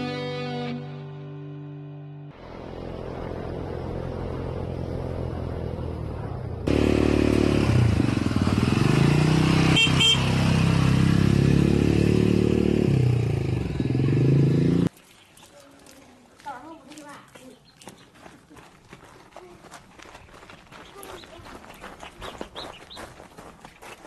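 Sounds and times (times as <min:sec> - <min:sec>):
motorcycle engine running: 0:02.4 - 0:14.9
short horn beeps: 0:09.7 - 0:10.4.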